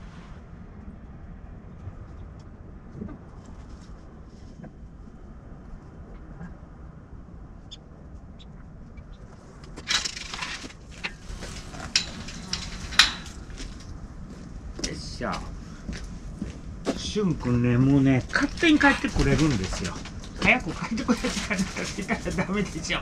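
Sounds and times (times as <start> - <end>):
steady low rumble: 0.0 - 23.0
rustling and clattering: 9.2 - 17.1, 18.0 - 23.0.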